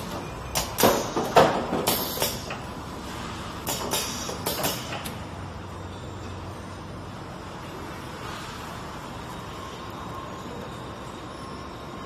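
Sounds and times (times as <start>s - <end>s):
sharp mechanical clacks: 3.6s - 5.2s.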